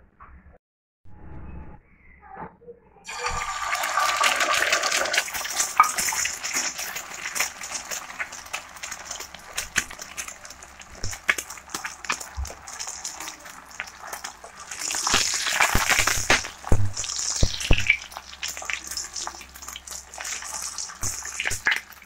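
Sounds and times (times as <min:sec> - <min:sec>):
egg sizzling in hot oil: 0:03.1 - 0:22.0
crackling oil pops: 0:15.0 - 0:18.8.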